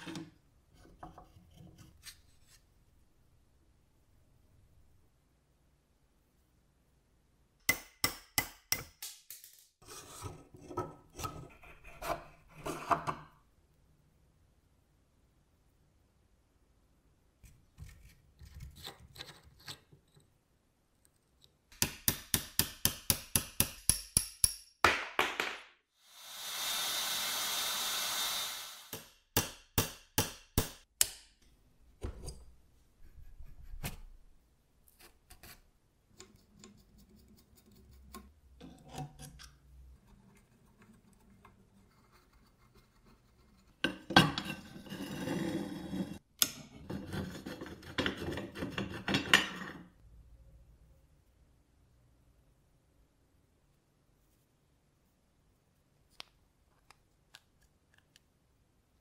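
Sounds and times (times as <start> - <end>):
metal scraping and rubbing: 36.4 - 49.8.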